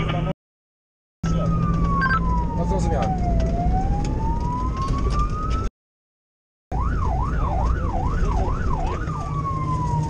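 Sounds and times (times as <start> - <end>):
engine rumble: 1.2 - 5.7, 6.8 - 10.0
fire engine siren: 1.2 - 5.7, 6.7 - 10.0.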